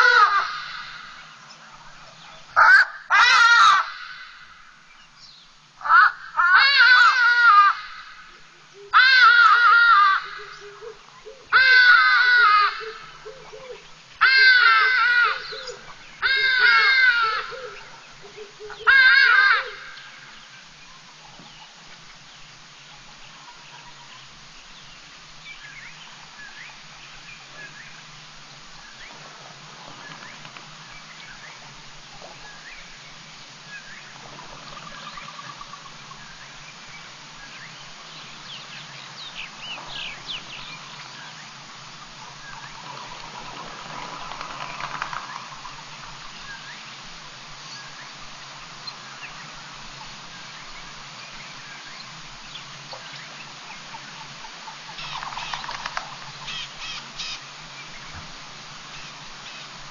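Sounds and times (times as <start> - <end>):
birds chirping: 0.0 - 59.9
microphone hum and hiss: 0.0 - 59.9.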